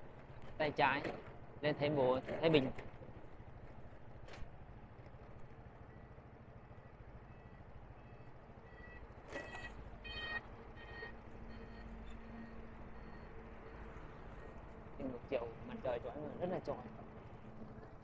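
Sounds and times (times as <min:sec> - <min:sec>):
short electronic beeps: 0:07.3 - 0:13.4.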